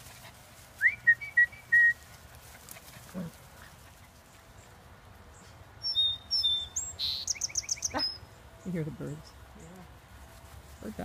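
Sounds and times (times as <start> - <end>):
whistled notes: 0.8 - 2.0.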